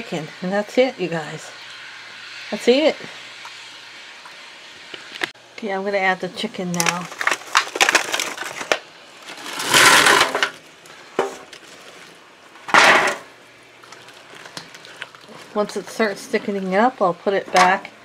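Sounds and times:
spatula scraping wok: 0:09.3 - 0:10.6, 0:13.8 - 0:17.5.

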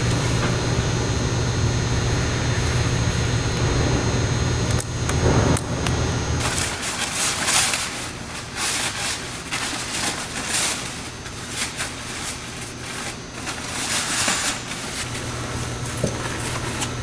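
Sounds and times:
low steady hum: 0:00.0 - 0:17.0
coverall rustling and crinkling: 0:06.4 - 0:17.0.

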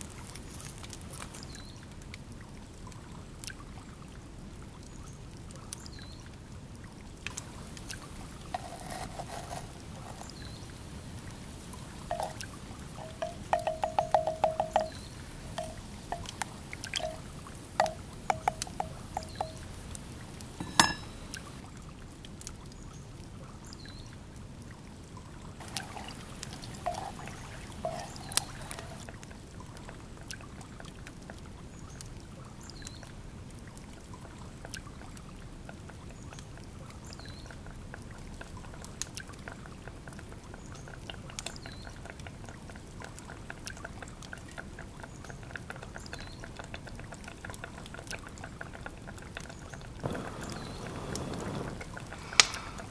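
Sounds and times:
wood fire crackling: 0:00.0 - 0:01.5, 0:07.2 - 0:21.8, 0:25.6 - 0:30.2, 0:46.5 - 0:52.9
trickling water-like wash: 0:00.0 - 0:52.9
wooden spoon knocking clay pot: 0:12.1 - 0:12.4, 0:13.0 - 0:19.8, 0:20.6 - 0:21.4, 0:25.6 - 0:29.0.

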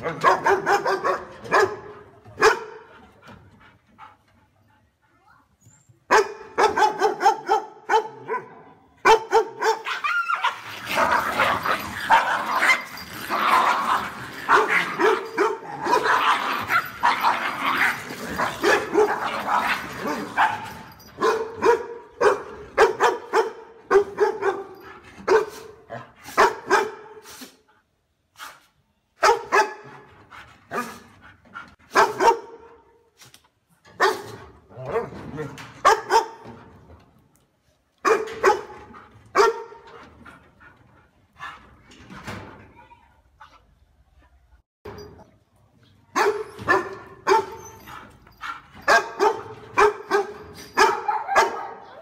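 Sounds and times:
dogs barking: 0:00.0 - 0:02.8, 0:06.1 - 0:13.0, 0:13.6 - 0:25.6, 0:31.9 - 0:32.7, 0:35.8 - 0:36.4, 0:46.2 - 0:47.7, 0:48.4 - 0:52.0.

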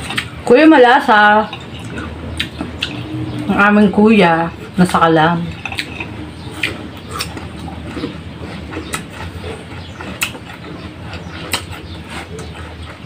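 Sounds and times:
steady low hum: 0:00.0 - 0:13.0
crisp crunching and chewing: 0:05.5 - 0:13.0.

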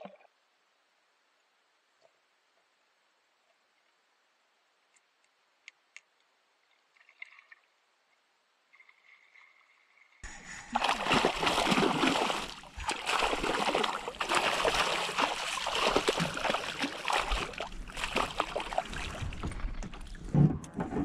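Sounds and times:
fish splashing water: 0:10.2 - 0:20.2.

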